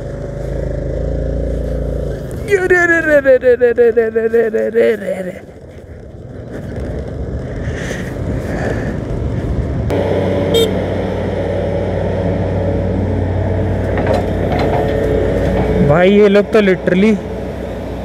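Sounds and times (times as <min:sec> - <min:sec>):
scooter on gravel road: 0:00.0 - 0:16.3
excavator diesel engines droning: 0:00.0 - 0:18.0
wind: 0:00.0 - 0:18.0
high-pitched tone: 0:09.9 - 0:10.9.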